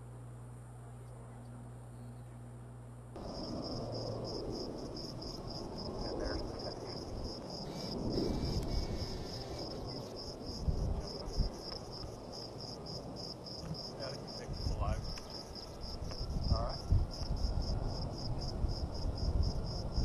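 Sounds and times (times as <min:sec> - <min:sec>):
low rumbling noise: 0:00.0 - 0:15.2
insect chirping: 0:03.2 - 0:20.0.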